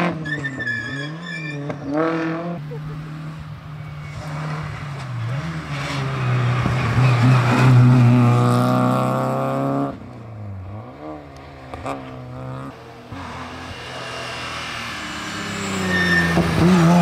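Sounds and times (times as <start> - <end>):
rally car engine at high revs: 0.0 - 0.4, 1.0 - 17.0.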